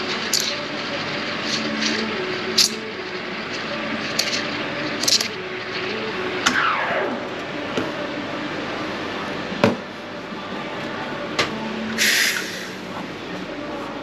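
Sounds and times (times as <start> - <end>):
steam wand hissing: 12.0 - 12.9.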